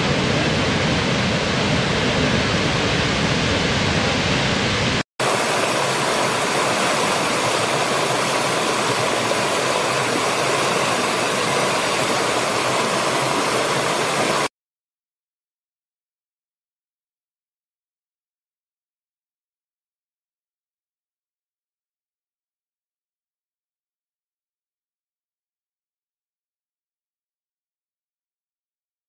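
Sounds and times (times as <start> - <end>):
waterfall roaring: 0.0 - 14.5
stream splashing over rocks: 5.2 - 14.5.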